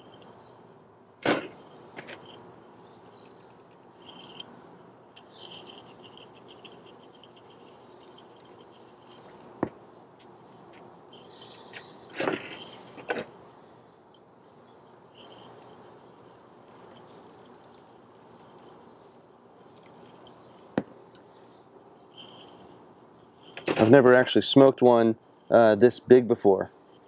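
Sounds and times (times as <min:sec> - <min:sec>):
spice shaker rattling: 0:03.1 - 0:09.6.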